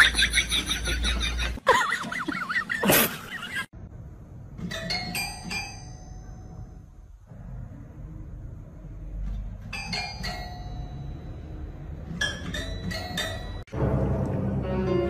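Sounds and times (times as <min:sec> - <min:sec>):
music: 0:09.8 - 0:15.0
toy piano notes plinked: 0:12.2 - 0:13.6.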